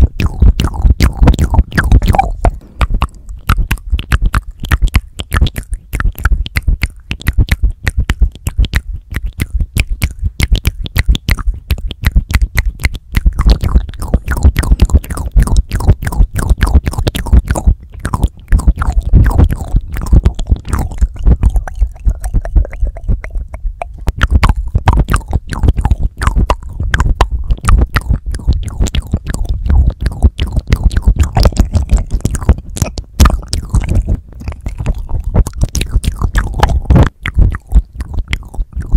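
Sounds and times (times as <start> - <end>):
wet mouth sounds on microphone: 0.0 - 38.9
low thumps on microphone: 1.3 - 4.1.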